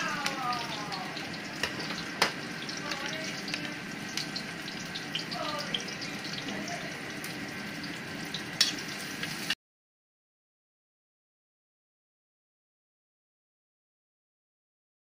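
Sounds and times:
garlic sizzling in a wok: 0.0 - 9.6.

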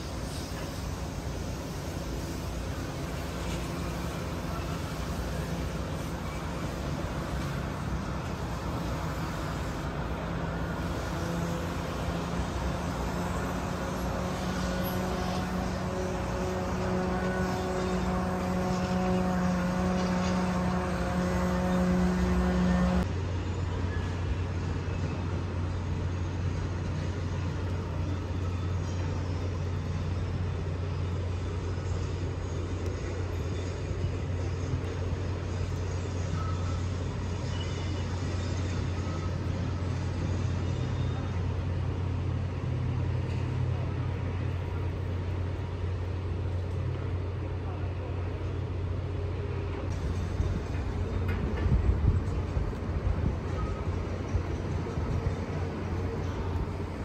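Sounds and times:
steady engine hum: 0.0 - 57.0.

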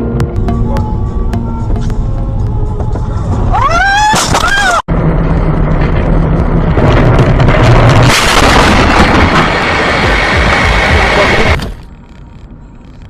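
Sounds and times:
car engine and road rumble: 0.0 - 13.0
car crash: 4.0 - 11.9.

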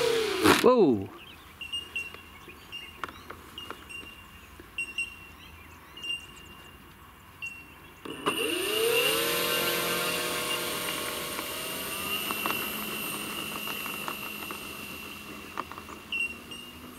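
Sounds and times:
electric motor propeller whine: 0.0 - 0.6, 8.0 - 16.9.

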